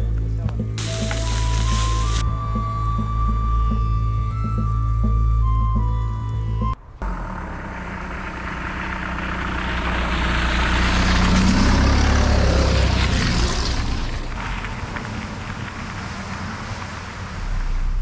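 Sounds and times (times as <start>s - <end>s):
car driving over grass: 0.8s - 2.2s, 6.8s - 18.0s.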